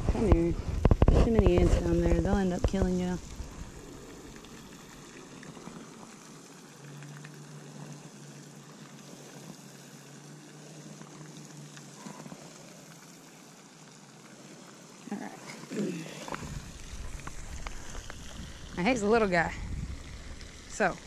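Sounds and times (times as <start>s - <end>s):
outdoor background hiss: 0.0s - 21.0s
faint ticks: 2.6s - 15.6s.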